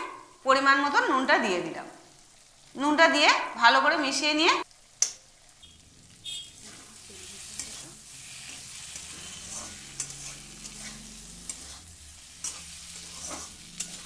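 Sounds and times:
oil sizzling: 0.0 - 14.0
metal spatula scraping a pan: 6.3 - 14.0.

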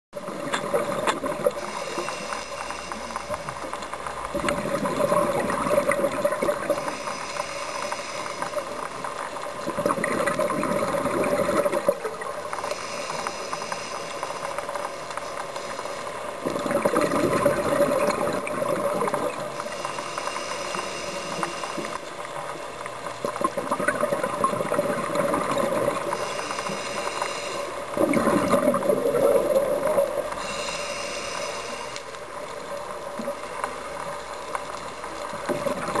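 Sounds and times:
underwater bubbles gurgling: 0.2 - 36.0
breathing regulator hiss: 1.5 - 3.7, 6.6 - 9.1, 12.6 - 16.4, 19.4 - 22.2, 26.0 - 28.0, 30.3 - 32.2.

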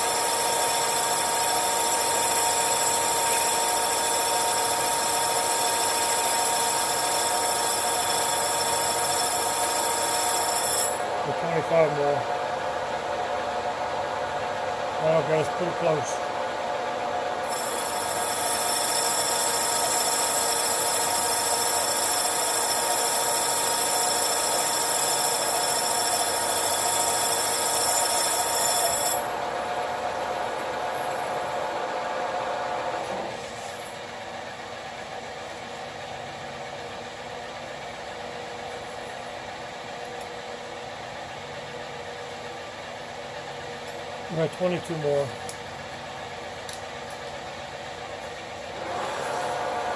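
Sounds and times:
lathe cutting tool ringing whine: 0.0 - 12.3, 17.4 - 31.8.

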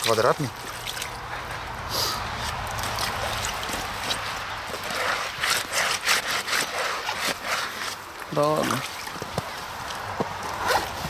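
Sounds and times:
water trickling and splashing: 0.0 - 11.0
sponge scrubbing: 3.2 - 8.0.

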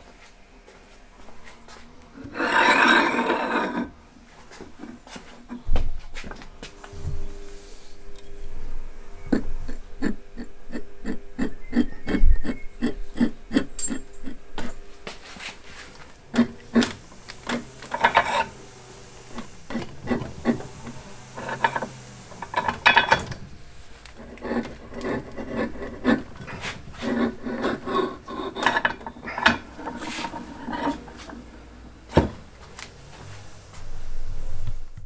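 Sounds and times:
broach rasping through metal: 2.2 - 3.9, 8.1 - 31.7.

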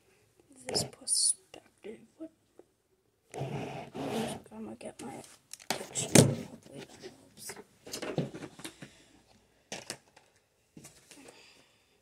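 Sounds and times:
objects knocking and thumping: 7.8 - 9.0.

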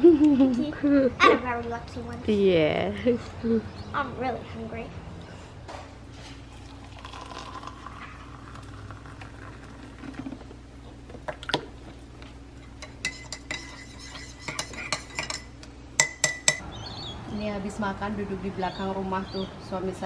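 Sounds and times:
liquid pouring into a mug: 6.5 - 10.4.

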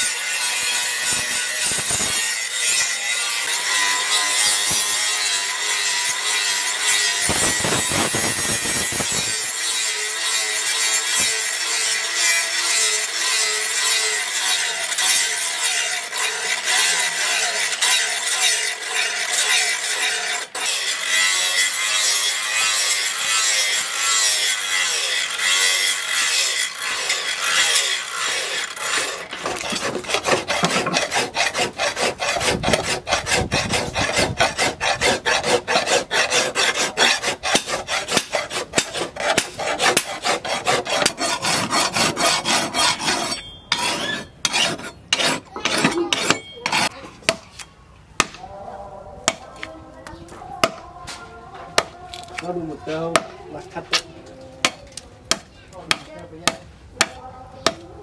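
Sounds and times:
angle grinder grinding steel: 0.0 - 47.0
hand file sharpening blade: 6.9 - 47.0.

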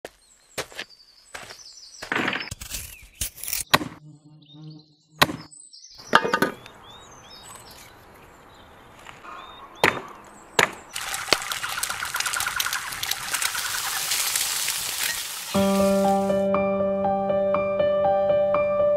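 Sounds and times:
birds chirping faintly: 0.0 - 3.4, 4.0 - 16.2
knife chopping on wooden block: 5.2 - 5.4
meat frying sizzle: 10.9 - 16.4.

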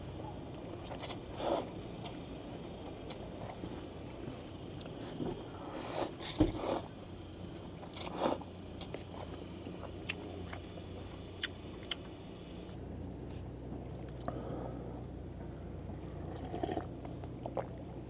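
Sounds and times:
slurping and chewing noodles: 16.2 - 17.8.

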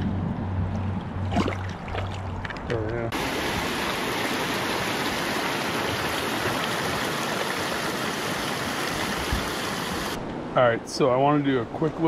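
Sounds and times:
river rushing over rocks: 3.2 - 10.2.

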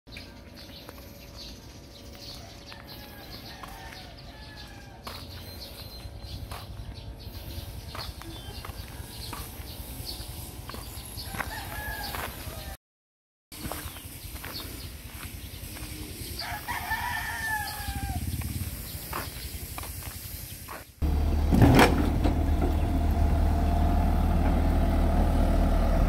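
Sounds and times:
birds calling: 0.1 - 12.8, 20.4 - 26.0
low steady rumble: 21.0 - 26.0.

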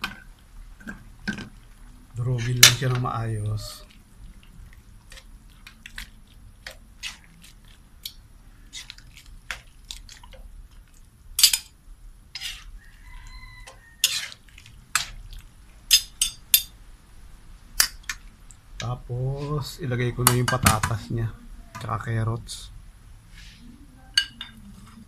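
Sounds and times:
metal ladle scraping a wok: 12.3 - 15.2.

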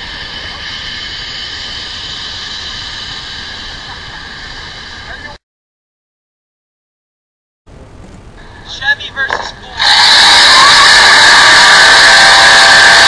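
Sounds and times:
truck engine at full throttle: 9.8 - 13.0.

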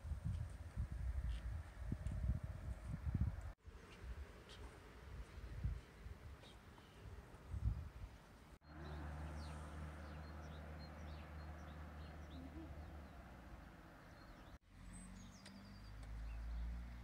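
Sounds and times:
low hum of road traffic: 3.4 - 17.0
small birds chirping: 6.4 - 17.0
vehicle rumbling: 8.6 - 17.0.

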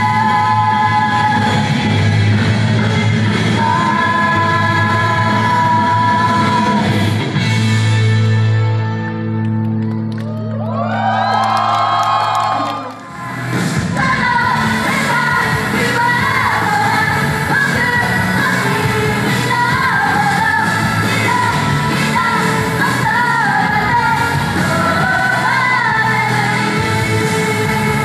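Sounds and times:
women singing: 0.0 - 2.0, 3.4 - 7.2, 13.8 - 28.0
loud pop music: 0.0 - 9.4, 10.9 - 28.0.

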